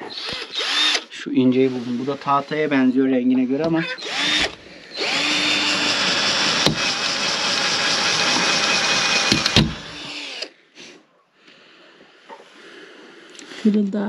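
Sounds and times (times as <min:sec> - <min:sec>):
cordless drill whining: 0:00.0 - 0:02.9, 0:03.6 - 0:10.6.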